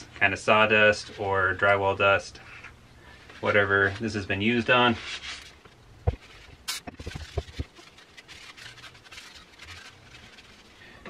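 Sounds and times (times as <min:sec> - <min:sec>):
paper towel rubbing: 0:03.4 - 0:11.0.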